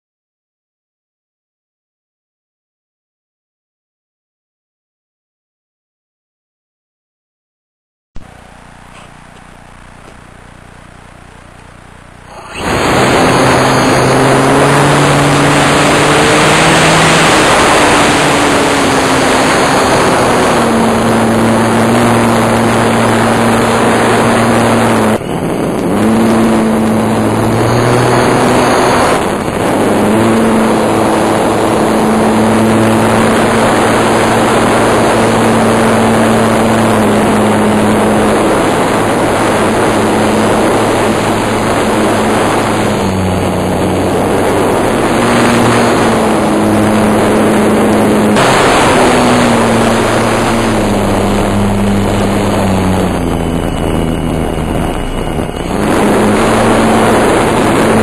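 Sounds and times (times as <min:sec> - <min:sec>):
model airplane motor running: 0:08.2 - 0:58.0
air rushing over microphone: 0:12.2 - 0:58.0.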